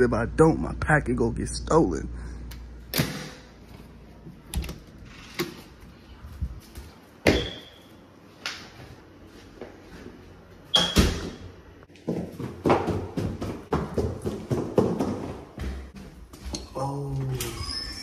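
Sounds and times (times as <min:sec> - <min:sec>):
door opening: 0:04.5 - 0:05.7
footsteps on stone stairs: 0:11.9 - 0:16.6.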